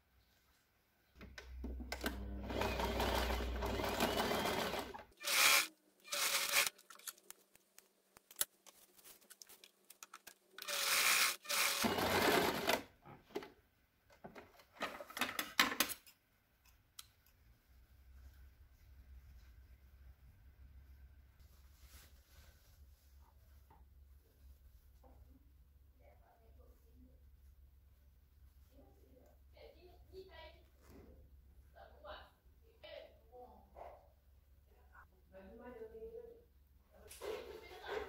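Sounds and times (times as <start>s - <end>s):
sewing machine stitching: 1.9s - 6.8s, 10.6s - 12.9s
fabric handling: 6.8s - 10.5s.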